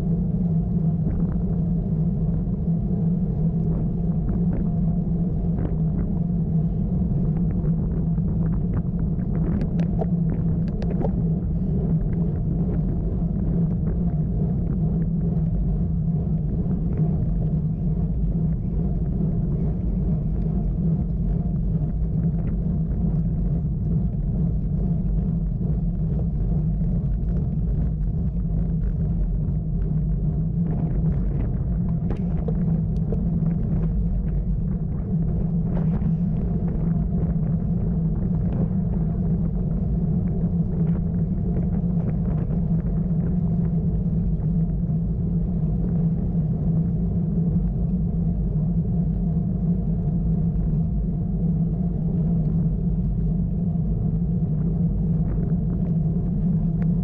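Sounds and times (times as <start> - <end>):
wind and road noise rumble: 0.0 - 57.0
faint ticks: 9.3 - 11.2.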